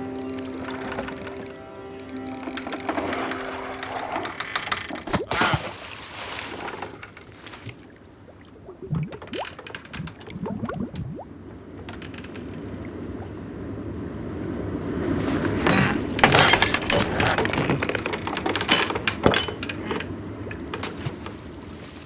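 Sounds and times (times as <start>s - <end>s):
water washing against boat: 4.9s - 11.1s
knocks and clattering: 15.4s - 21.4s.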